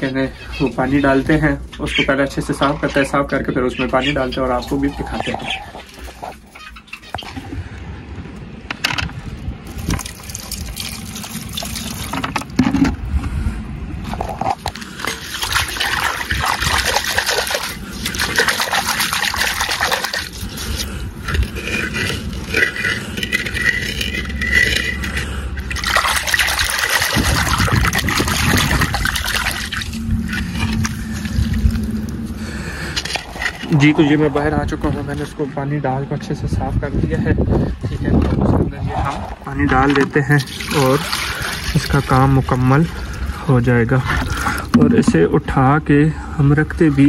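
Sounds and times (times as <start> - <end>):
water pouring and splashing: 9.6 - 12.9, 14.0 - 35.6, 38.8 - 45.6.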